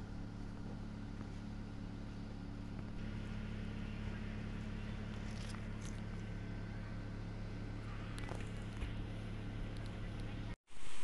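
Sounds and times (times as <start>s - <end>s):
low motor hum: 0.0s - 11.0s.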